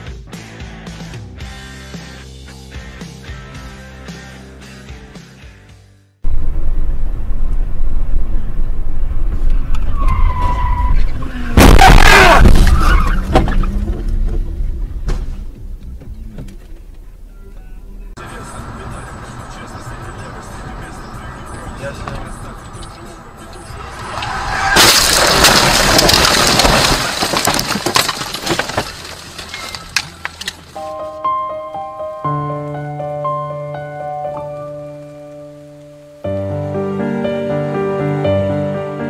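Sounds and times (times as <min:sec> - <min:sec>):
road rumble: 0:06.2 - 0:36.8
car crash screeching and impact: 0:06.3 - 0:15.8, 0:18.3 - 0:30.7
tyre squeal: 0:09.8 - 0:13.8, 0:22.7 - 0:25.4
crashing and scraping through bushes: 0:23.7 - 0:30.8
branches cracking and snapping: 0:24.1 - 0:30.8.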